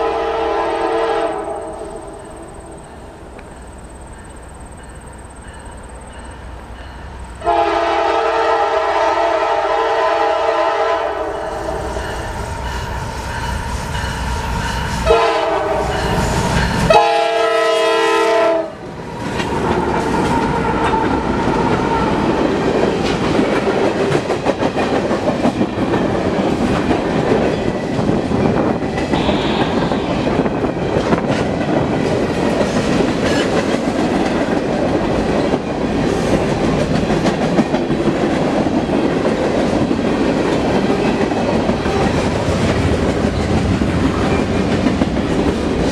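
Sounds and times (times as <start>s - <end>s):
locomotive air horn blasts: 0.0s - 2.3s, 7.4s - 12.0s, 15.0s - 16.0s, 16.9s - 18.8s, 29.1s - 30.3s
train wheels clicking over rail joints: 19.2s - 45.9s.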